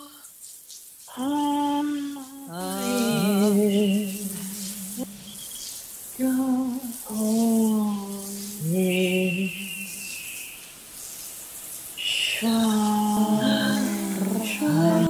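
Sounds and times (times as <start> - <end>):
women singing held notes: 1.1 - 5.3, 6.2 - 10.0, 12.0 - 15.0
thin high tone: 2.6 - 6.5, 12.4 - 15.0.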